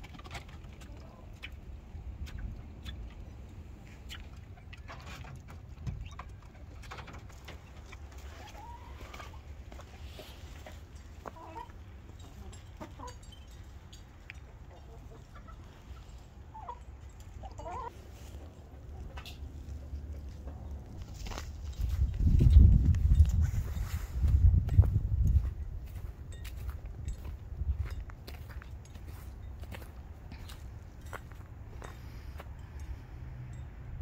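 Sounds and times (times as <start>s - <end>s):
hens clucking: 0.0s - 21.6s
steady low rumble: 18.5s - 34.0s.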